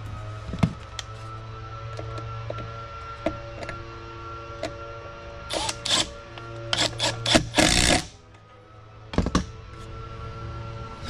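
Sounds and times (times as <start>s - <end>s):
cordless driver whirring: 1.9s - 8.2s.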